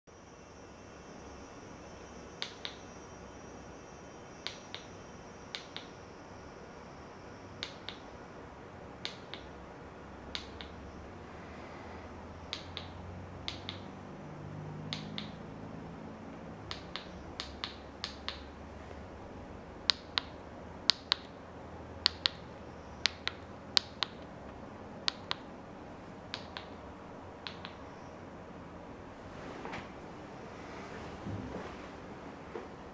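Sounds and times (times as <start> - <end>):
remote control button clicks: 12.5 - 13.9, 14.9 - 15.4, 26.3 - 26.8, 27.4 - 27.8.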